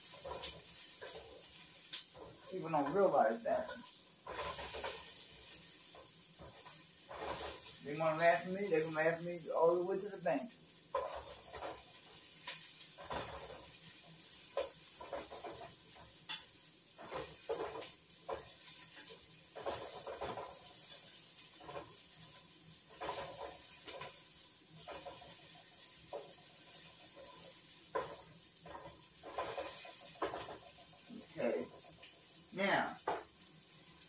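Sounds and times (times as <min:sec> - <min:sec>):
onions sizzling in oil: 0:00.0 - 0:34.0
spoon scraping a pot: 0:02.2 - 0:07.7, 0:27.0 - 0:30.8.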